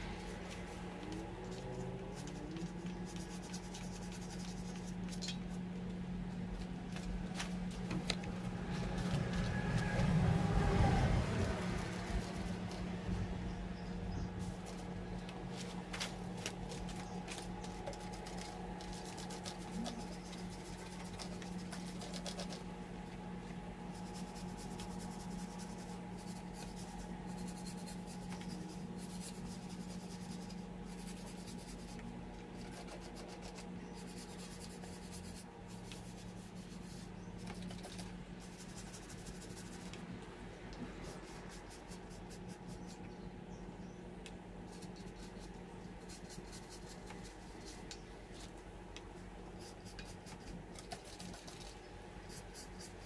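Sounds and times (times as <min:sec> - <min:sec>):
brush scrubbing metal: 0:00.0 - 0:05.7, 0:14.4 - 0:22.7, 0:23.8 - 0:40.0
steady low hum: 0:00.0 - 0:53.0.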